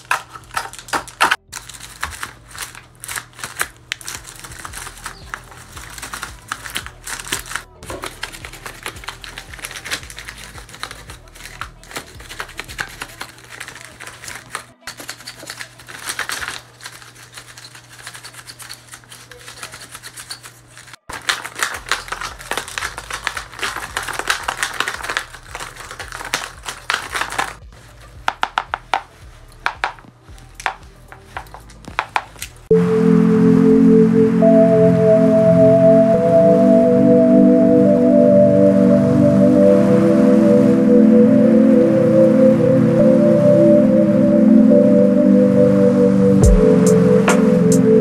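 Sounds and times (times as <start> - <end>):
paper puppet jaws clacking: 0.0 - 27.6.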